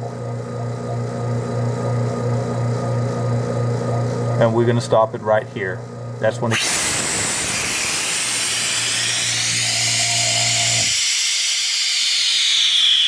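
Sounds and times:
vacuum pump motor hum: 0.0 - 13.0
air hissing into chamber: 6.5 - 13.0.

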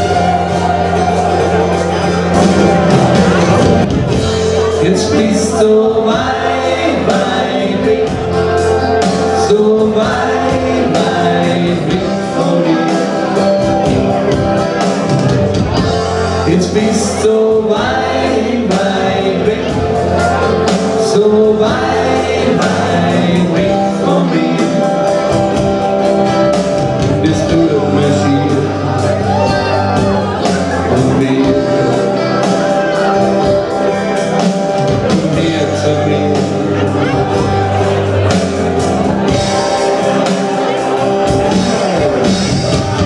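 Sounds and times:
live band playing: 0.0 - 43.0
man singing: 4.2 - 43.0.

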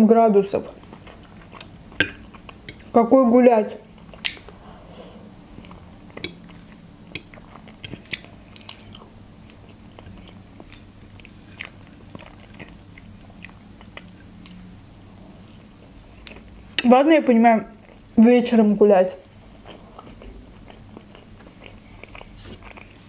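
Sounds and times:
chewing soft food: 0.7 - 3.0, 3.9 - 16.8, 17.7 - 18.2, 19.3 - 23.0
wet mouth clicks: 4.1 - 4.6, 5.6 - 8.3.

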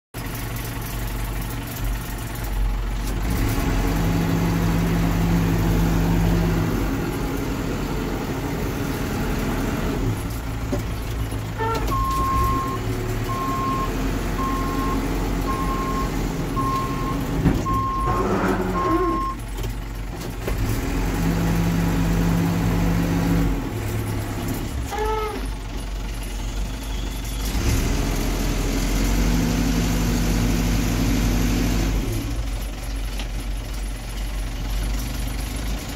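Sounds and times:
diesel engine revving: 0.2 - 35.9
reversing alarm beeps: 11.9 - 19.4.

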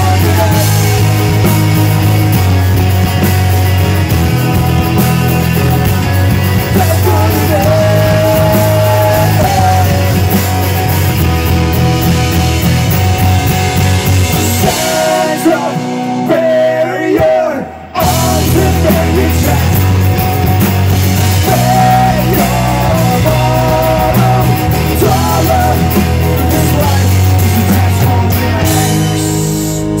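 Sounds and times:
man singing loudly: 0.0 - 1.4, 6.6 - 10.4, 14.6 - 20.0, 21.4 - 29.5
punk rock band playing: 0.0 - 30.0.

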